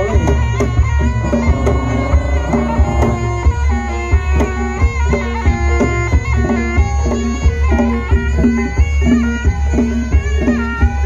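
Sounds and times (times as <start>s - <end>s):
drum strokes: 0.0s - 7.2s
wailing reed pipe melody: 0.0s - 8.0s.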